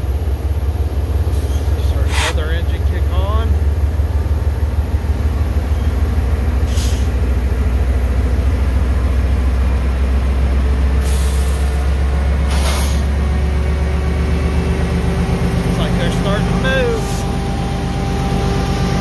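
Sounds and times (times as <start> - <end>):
locomotive engines rumbling: 0.0 - 19.0
short hisses: 1.4 - 2.4, 12.5 - 13.1.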